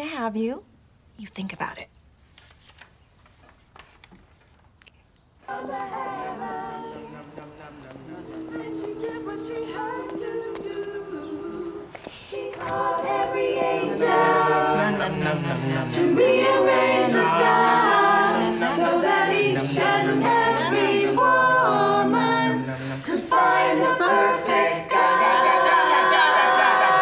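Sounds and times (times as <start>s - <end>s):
women singing in harmony: 5.5s - 27.0s.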